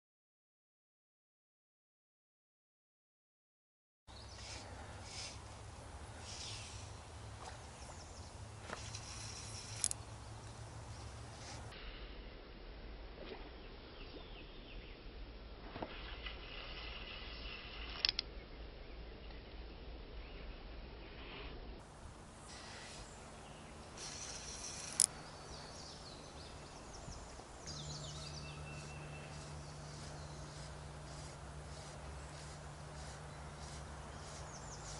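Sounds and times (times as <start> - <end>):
small birds chirping: 4.1 - 11.8, 22.2 - 34.9.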